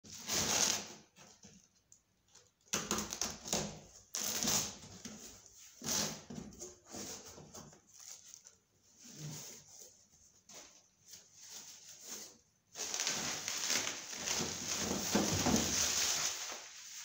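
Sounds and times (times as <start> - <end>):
cardboard flaps scraping: 11.2 - 17.0.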